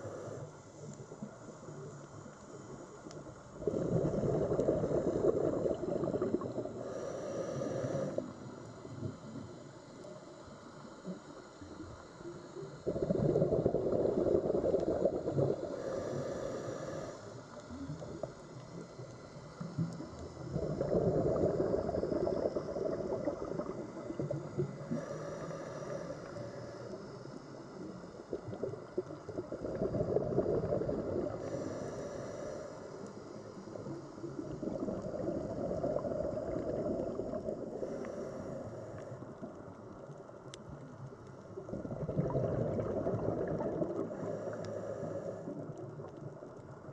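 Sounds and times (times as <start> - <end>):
exhaled bubbles underwater: 2.5 - 7.0, 12.6 - 31.8, 33.5 - 39.8, 40.7 - 46.9.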